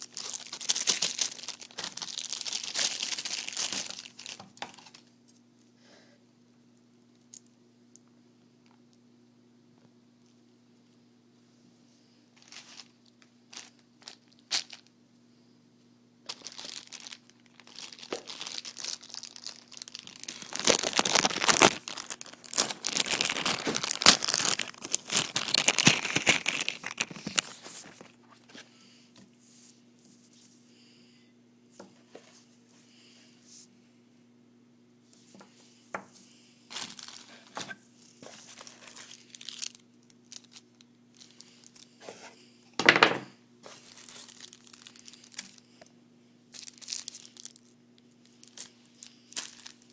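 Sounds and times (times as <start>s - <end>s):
plastic packaging crinkling: 0.0s - 5.1s, 12.4s - 14.9s, 16.2s - 28.3s, 36.7s - 42.2s, 42.8s - 45.9s, 46.5s - 49.9s.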